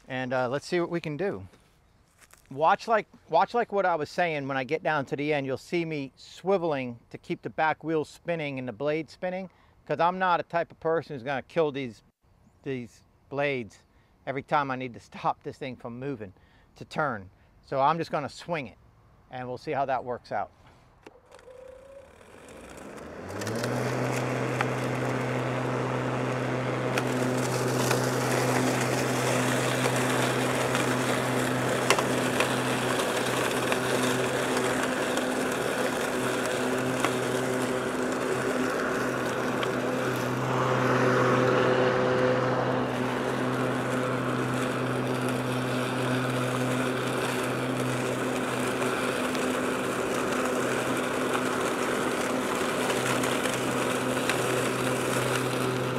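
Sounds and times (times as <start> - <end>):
lawn mower running: 21.0 - 55.9
mower cutting grass: 21.0 - 55.9.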